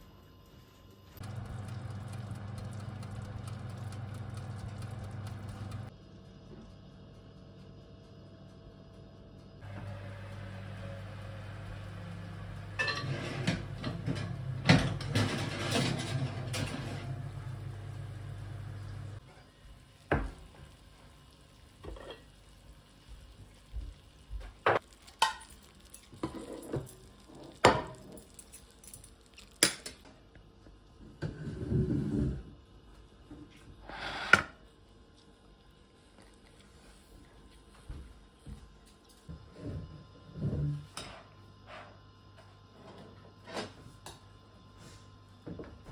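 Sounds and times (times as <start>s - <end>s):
steady low hum: 0.0s - 33.8s
dishes and cutlery clattering: 12.8s - 14.2s.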